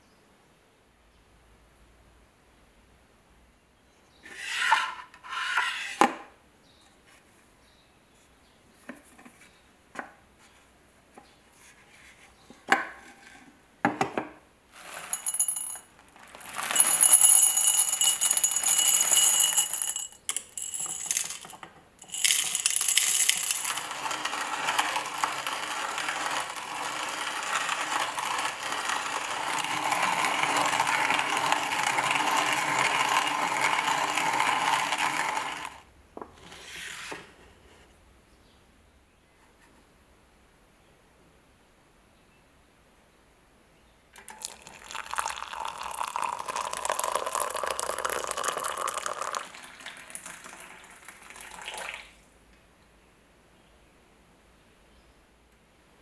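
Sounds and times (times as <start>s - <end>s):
coffee beans rattling into hopper: 14.7s - 35.8s, 44.2s - 52.0s
hand coffee grinder grinding: 14.8s - 35.8s, 44.2s - 51.9s.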